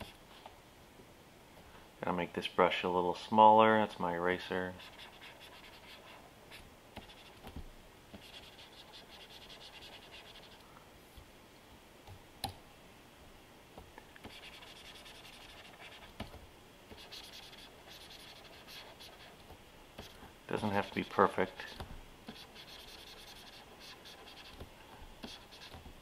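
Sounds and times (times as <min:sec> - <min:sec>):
pen stylus scratching on screen: 0:04.7 - 0:07.6, 0:08.2 - 0:10.6, 0:14.2 - 0:25.9.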